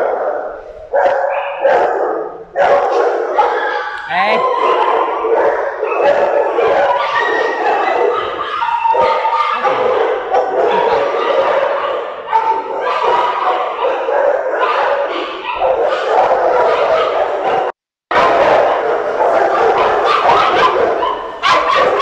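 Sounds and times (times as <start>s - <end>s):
many dogs barking and whining: 0.0s - 22.0s.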